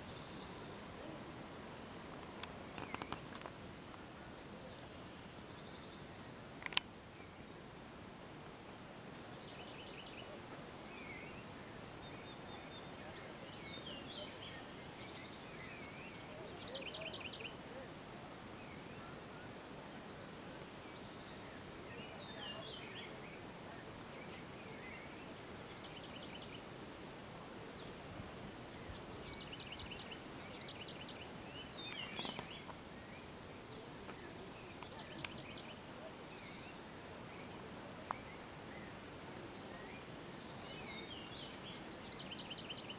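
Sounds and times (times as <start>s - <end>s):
sharp clicks: 6.6s - 6.9s.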